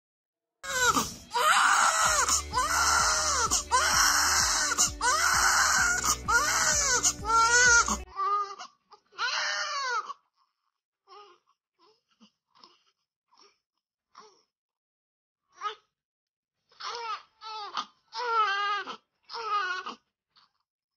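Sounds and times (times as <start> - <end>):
background music: 0.6 - 8.1
baby crying: 0.6 - 10.2, 16.8 - 20.0
baby whimpering: 0.6 - 10.2, 11.1 - 13.6, 16.7 - 20.1.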